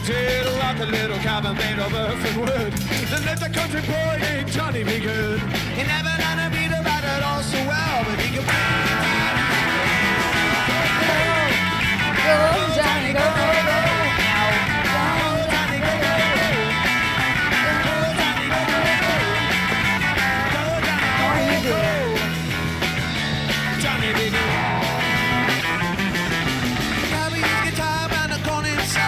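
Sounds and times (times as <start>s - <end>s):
rock band playing live: 0.0s - 29.0s
person singing: 9.3s - 16.8s, 17.4s - 22.3s.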